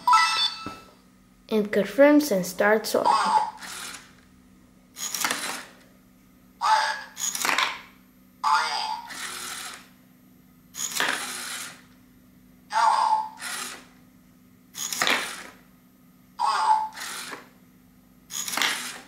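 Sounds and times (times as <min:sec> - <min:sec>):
motor whirring: 0:03.1 - 0:04.2, 0:05.0 - 0:05.8, 0:08.5 - 0:09.9, 0:10.8 - 0:11.9, 0:13.0 - 0:14.0, 0:14.8 - 0:15.6, 0:16.4 - 0:17.5, 0:18.3 - 0:19.0.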